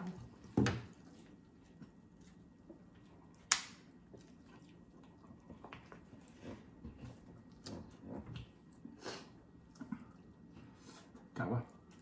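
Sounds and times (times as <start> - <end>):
sharp snap: 3.5 - 3.8.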